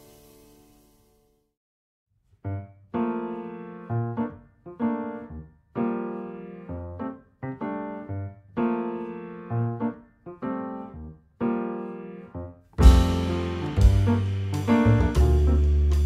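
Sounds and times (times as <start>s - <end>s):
keyboard chords: 3.0s - 16.0s
low bass notes: 12.8s - 16.0s.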